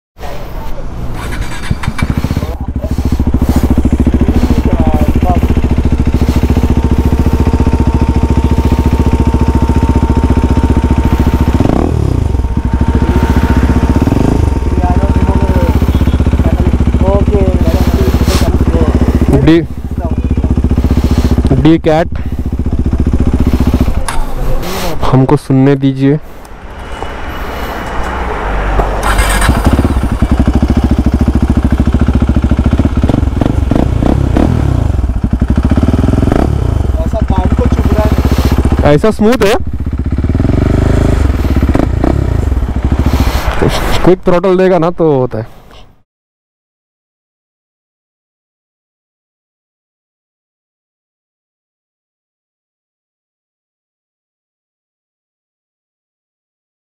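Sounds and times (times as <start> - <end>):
motorcycle engine idling and revving: 0.2 - 45.4.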